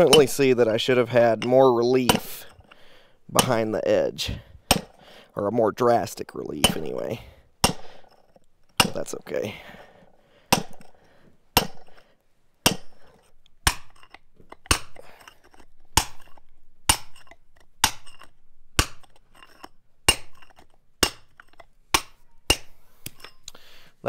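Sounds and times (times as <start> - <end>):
hammer striking stone drill: 0.0 - 2.8, 4.7 - 5.0, 6.6 - 7.0, 7.6 - 9.2, 10.5 - 11.0, 11.6 - 12.0, 12.6 - 23.5.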